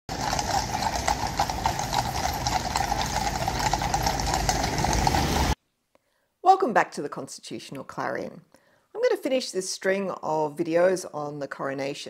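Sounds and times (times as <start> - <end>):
horse hooves clip-clopping: 0.1 - 5.6.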